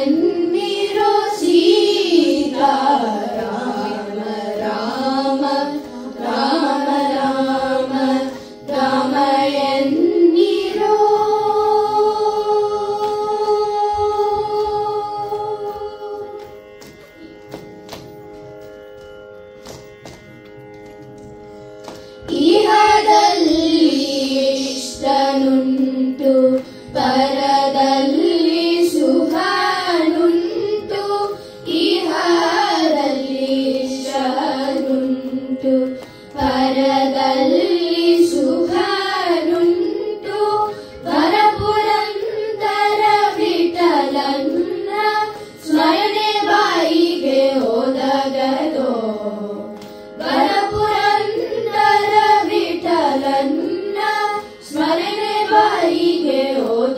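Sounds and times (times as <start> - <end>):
children singing through microphones: 0.0 - 16.6, 22.2 - 56.9.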